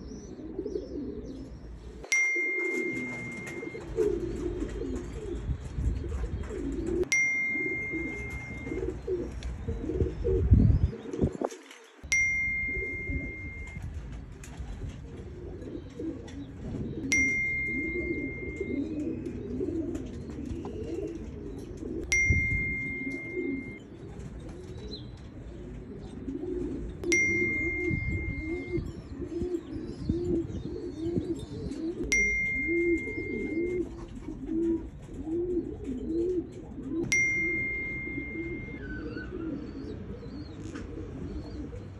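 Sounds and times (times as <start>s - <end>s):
pigeons cooing: 0.0s - 41.9s
high ding: 2.1s - 3.8s, 7.1s - 8.9s, 12.1s - 13.8s, 17.1s - 18.8s, 22.1s - 23.8s, 27.1s - 28.8s, 32.1s - 33.8s, 37.1s - 39.0s.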